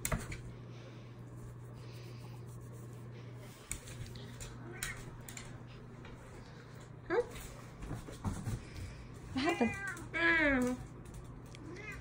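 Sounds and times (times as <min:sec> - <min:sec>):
steady low hum: 0:00.0 - 0:12.0
soft rubbing and rustling: 0:01.2 - 0:06.6.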